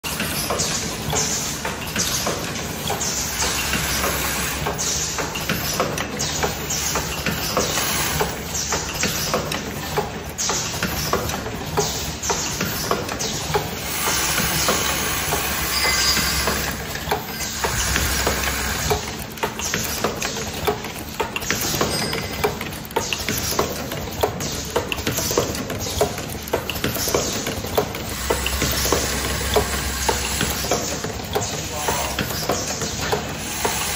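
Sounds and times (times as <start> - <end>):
machine grippers clicking and clacking: 0.0 - 33.9
machine humming: 13.6 - 20.6, 27.0 - 33.9.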